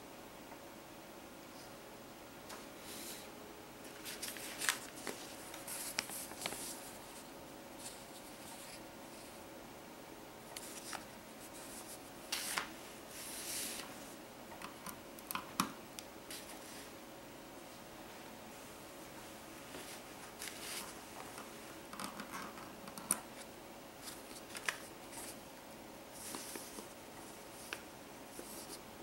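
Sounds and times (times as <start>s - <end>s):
paper card rustling: 3.9s - 9.3s, 10.6s - 13.9s, 19.7s - 21.5s, 23.3s - 25.4s, 26.2s - 26.9s.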